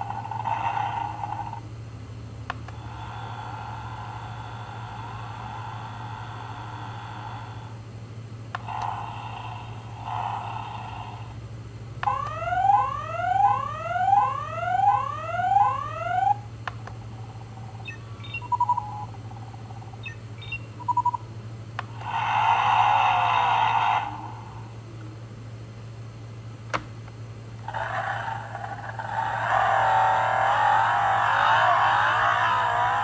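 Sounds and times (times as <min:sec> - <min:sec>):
toy engine sound effect: 0:00.0 - 0:01.7, 0:02.7 - 0:07.7, 0:08.6 - 0:11.4, 0:12.0 - 0:24.7, 0:27.6 - 0:33.0
rising electronic whoop: 0:12.1 - 0:16.4, 0:27.7 - 0:33.0.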